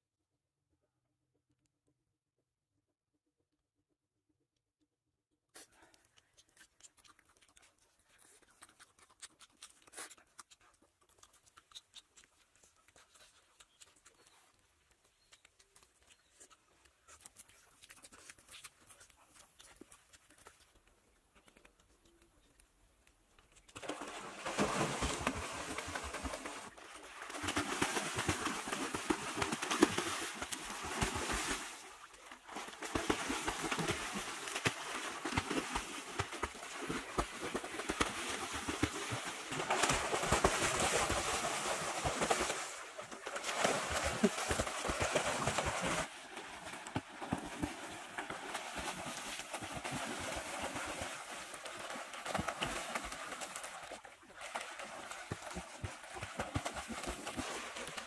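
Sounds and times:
water splashing from swimmers: 0:23.8 - 0:58.0.

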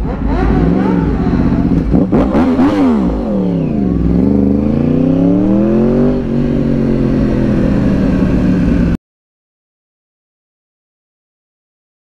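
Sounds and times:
motorcycle engine accelerating: 0:00.0 - 0:09.0.

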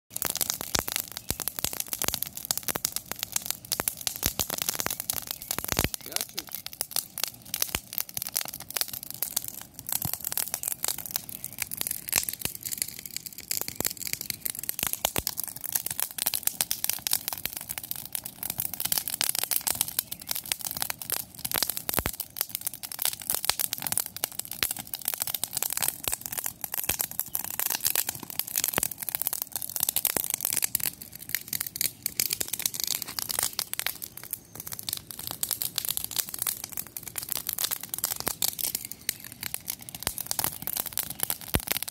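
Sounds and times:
wood fire crackling and popping: 0:00.1 - 0:41.9.

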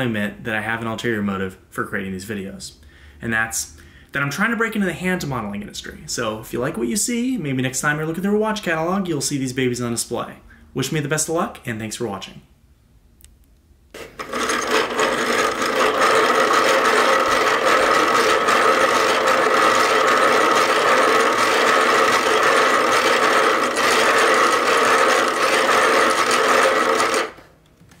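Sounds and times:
plastic gears whirring and grinding: 0:14.0 - 0:27.5.

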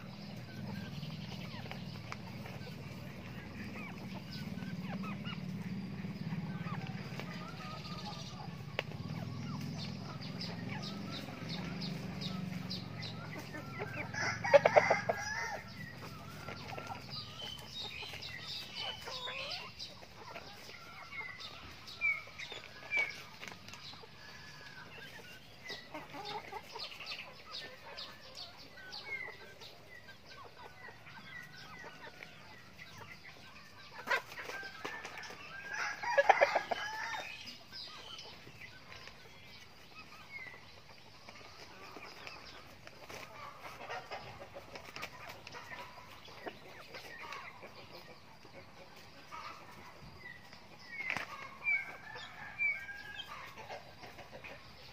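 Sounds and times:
chickens clucking: 0:00.0 - 0:54.9
rooster crowing: 0:13.9 - 0:15.8, 0:34.9 - 0:37.4.

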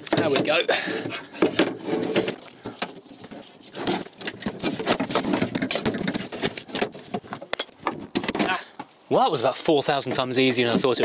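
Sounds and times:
metal clicks knocks and rattles: 0:04.1 - 0:08.5.

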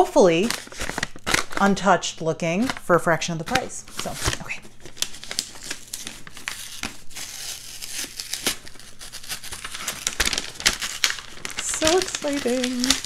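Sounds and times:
tissue paper crinkling: 0:00.0 - 0:01.8, 0:03.4 - 0:13.0
sticker peeling crackles: 0:02.6 - 0:13.0.

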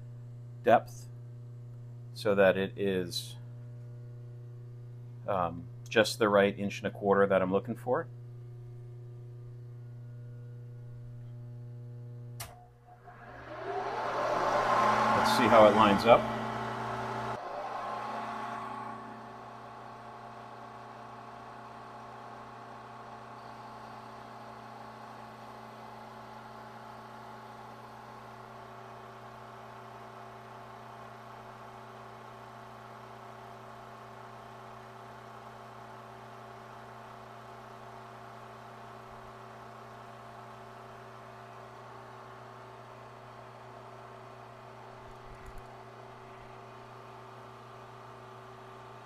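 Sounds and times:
milling machine humming: 0:08.1 - 0:26.2.

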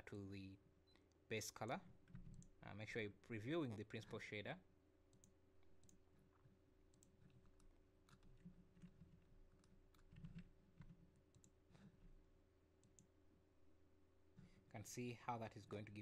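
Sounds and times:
computer mouse clicks: 0:00.9 - 0:02.6, 0:05.1 - 0:11.9, 0:12.8 - 0:13.1
keyboard clicks: 0:06.9 - 0:11.8.

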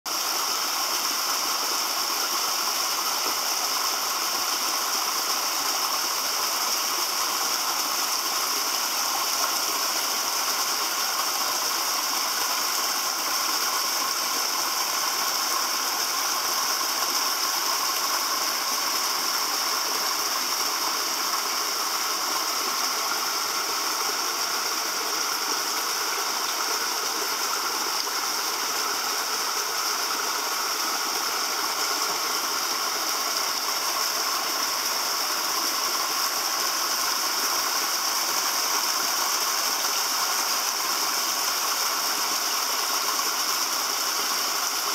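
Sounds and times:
waterfall splashing into pool: 0:00.1 - 0:44.9.

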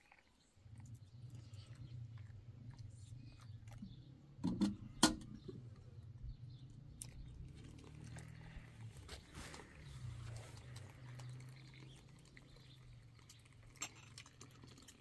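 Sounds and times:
low hum: 0:00.6 - 0:11.5.

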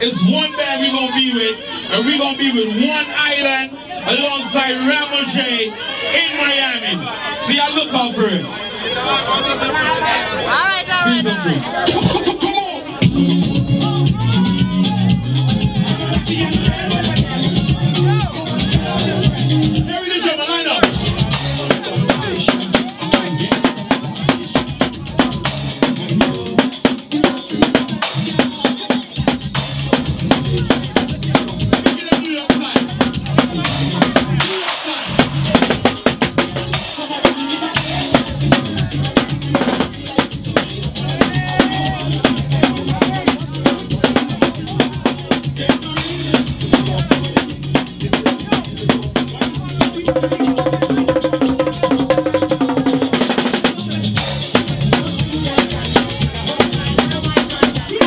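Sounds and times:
drum kit played with sticks: 0:11.8 - 0:20.0, 0:20.8 - 0:58.0
steady bass line: 0:11.9 - 0:20.0, 0:20.8 - 0:34.5, 0:35.1 - 0:58.0.

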